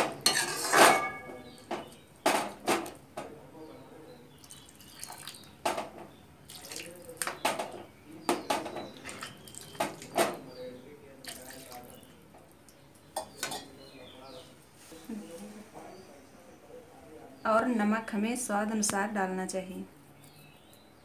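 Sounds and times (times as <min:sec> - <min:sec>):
ladle clinking against pan: 0:00.2 - 0:01.5, 0:13.2 - 0:13.7.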